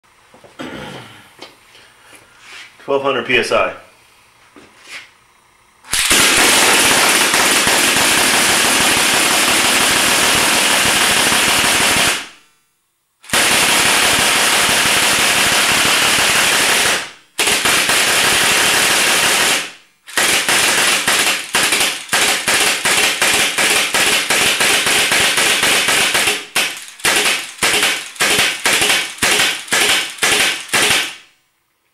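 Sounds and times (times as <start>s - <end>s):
paintball gun rapid firing: 5.9s - 12.4s, 13.2s - 31.3s.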